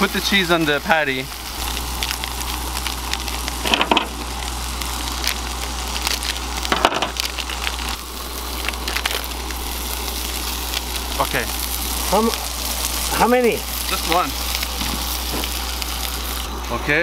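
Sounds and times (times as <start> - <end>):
plastic wrapper crinkling: 0.0 - 16.6
meat sizzling in a skillet: 0.0 - 17.0.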